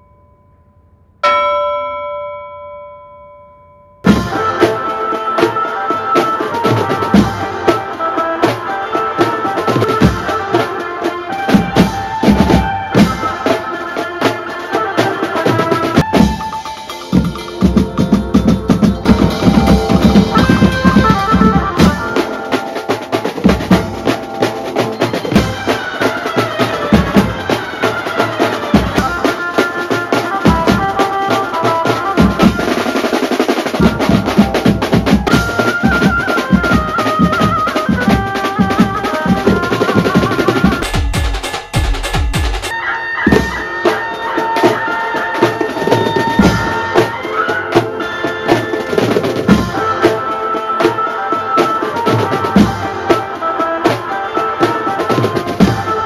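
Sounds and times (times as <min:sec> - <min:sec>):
chime-like tone ringing: 0:00.0 - 0:04.3, 0:16.1 - 0:21.0
street band playing: 0:04.0 - 0:56.0
fast drum beats: 0:04.1 - 0:56.0.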